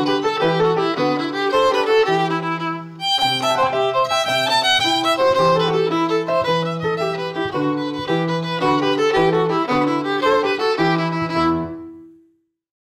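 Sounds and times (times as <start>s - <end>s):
violin playing a jig: 0.0s - 12.1s
piano accompaniment: 0.0s - 12.4s.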